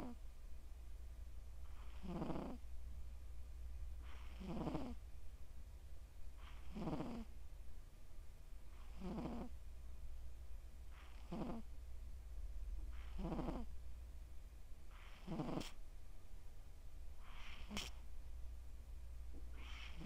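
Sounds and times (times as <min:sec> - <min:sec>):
cat snoring: 0:00.0 - 0:00.2, 0:01.6 - 0:02.6, 0:04.0 - 0:05.0, 0:06.4 - 0:07.3, 0:08.7 - 0:09.6, 0:10.9 - 0:11.7, 0:12.9 - 0:13.7, 0:14.9 - 0:15.8, 0:17.2 - 0:18.0, 0:19.5 - 0:20.0
low hum: 0:00.2 - 0:01.8, 0:02.6 - 0:04.0, 0:11.7 - 0:13.0, 0:18.0 - 0:20.0.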